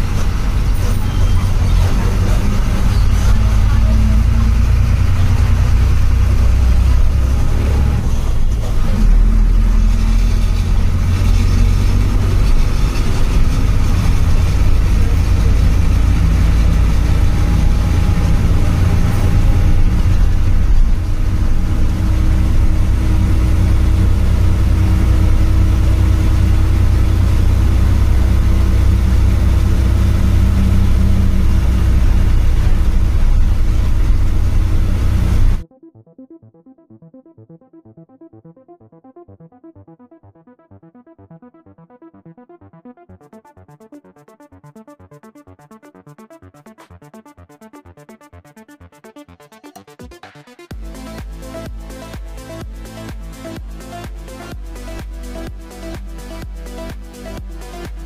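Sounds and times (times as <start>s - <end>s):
bus engine droning: 0.0s - 35.6s.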